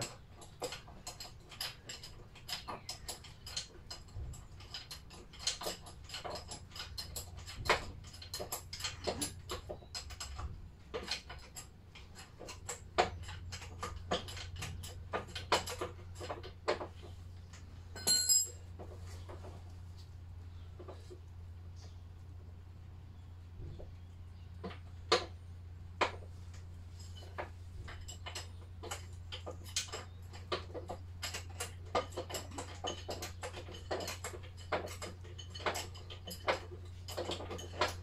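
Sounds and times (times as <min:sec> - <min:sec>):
ringing metal clink: 0:18.0 - 0:18.6.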